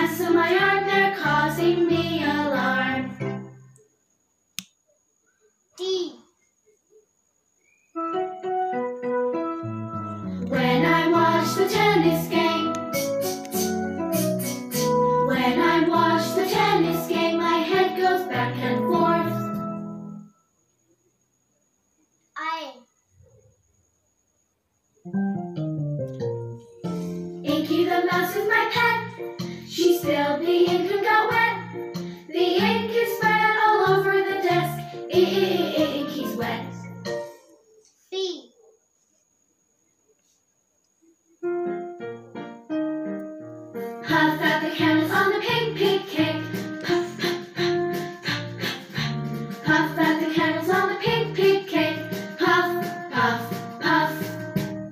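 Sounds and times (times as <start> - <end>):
girl singing: 0.0 - 3.3, 27.4 - 29.1, 29.7 - 31.6, 32.3 - 36.8, 44.0 - 46.5, 49.6 - 54.4
music with steady beat: 12.7 - 15.2
child singing: 32.3 - 36.9.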